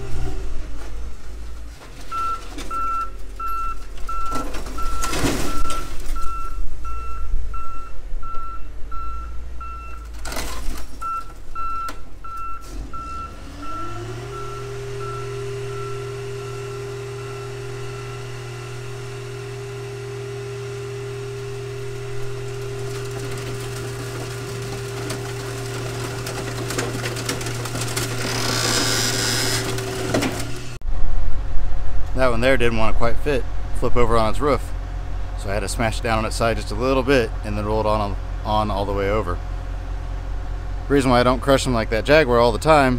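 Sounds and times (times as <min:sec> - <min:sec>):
hydraulic power unit humming: 0:00.0 - 0:42.9
reversing alarm beeps: 0:02.1 - 0:10.0, 0:11.0 - 0:18.3.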